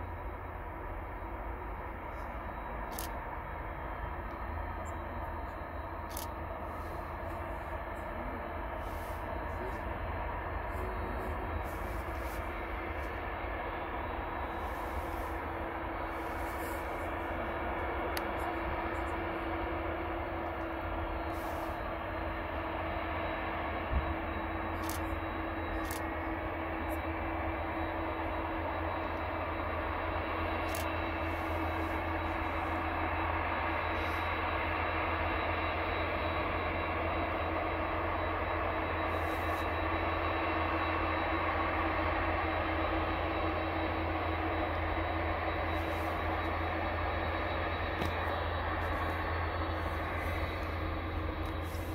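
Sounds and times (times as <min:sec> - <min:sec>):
distant jet engines rumbling: 0:01.2 - 0:34.8, 0:44.5 - 0:51.9.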